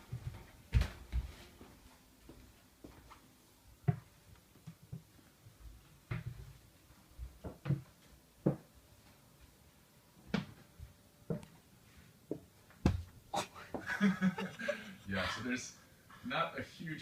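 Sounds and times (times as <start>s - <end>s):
footsteps on wooden stairs: 0.0s - 3.2s, 3.8s - 8.7s.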